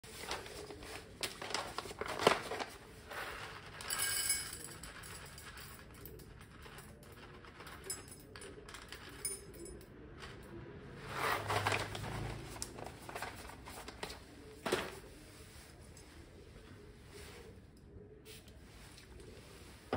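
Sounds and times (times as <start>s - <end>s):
coffee beans rattling in cup: 1.2s - 10.4s.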